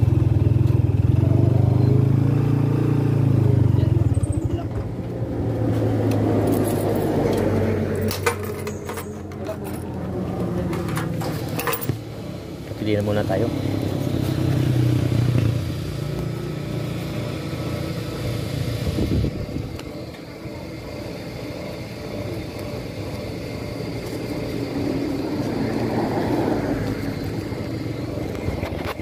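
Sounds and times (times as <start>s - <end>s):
motorcycle engine idling: 0.0s - 2.3s, 3.1s - 29.0s.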